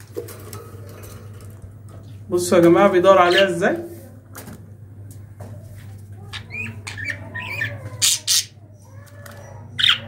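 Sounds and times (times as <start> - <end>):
budgerigar warbling chirps: 6.3 - 8.6, 9.8 - 10.0
budgerigar harsh squawks: 9.8 - 10.0.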